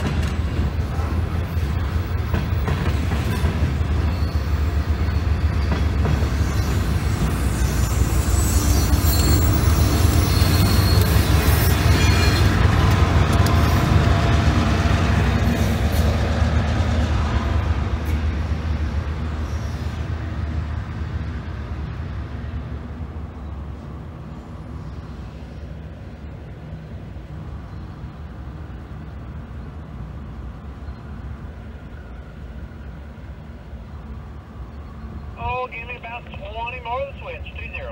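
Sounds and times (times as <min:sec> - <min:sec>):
diesel locomotives rumbling: 0:00.0 - 0:37.9.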